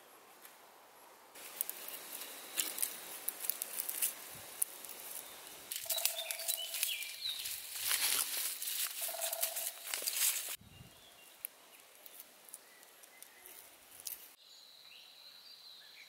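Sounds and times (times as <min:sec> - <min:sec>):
dry stems crackling and snapping: 0:01.4 - 0:10.6, 0:11.3 - 0:14.4
bird chirping: 0:04.6 - 0:08.2, 0:08.9 - 0:16.0.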